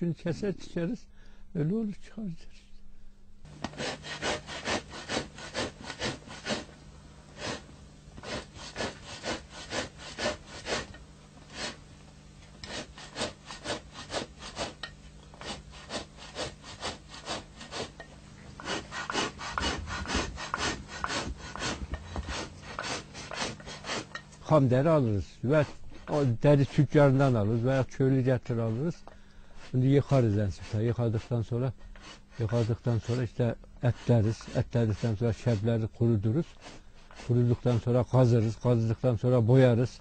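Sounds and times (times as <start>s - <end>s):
steady low hum: 0.0s - 40.0s
hand scraping pelt: 3.5s - 24.4s.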